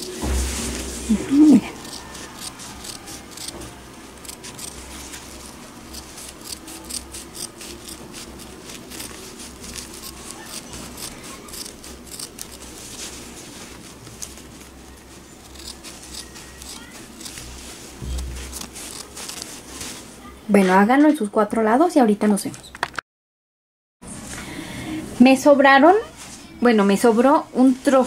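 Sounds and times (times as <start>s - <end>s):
scissors snipping fabric: 1.8s - 3.6s, 4.2s - 12.7s, 15.4s - 19.6s.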